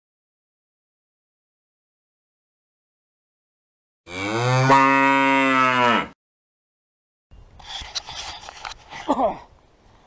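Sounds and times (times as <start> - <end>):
outdoor rustling and handling: 7.5 - 10.0.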